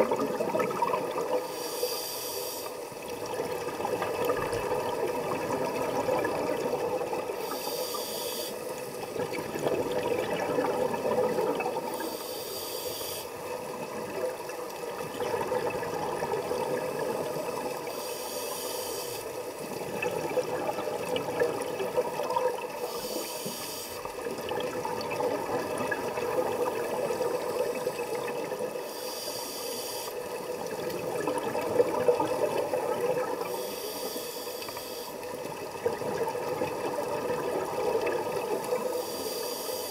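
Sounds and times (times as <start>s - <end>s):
exhaled air bubbling: 0.0s - 1.5s, 2.9s - 7.9s, 8.7s - 12.1s, 13.3s - 18.0s, 19.2s - 23.2s, 24.0s - 28.8s, 30.3s - 33.5s, 35.2s - 38.9s
regulator breathing hiss: 1.4s - 3.0s, 7.4s - 9.0s, 11.9s - 13.4s, 17.8s - 19.5s, 22.8s - 24.1s, 28.7s - 30.3s, 33.4s - 35.3s, 38.8s - 39.9s.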